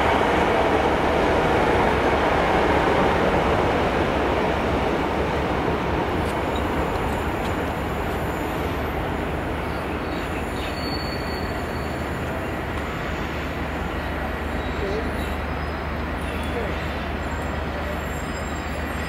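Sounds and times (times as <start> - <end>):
diesel locomotive engine running: 0.0 - 19.0
wheels rumbling on rail: 0.0 - 19.0
high wheel squeal: 10.4 - 13.5, 16.3 - 19.0.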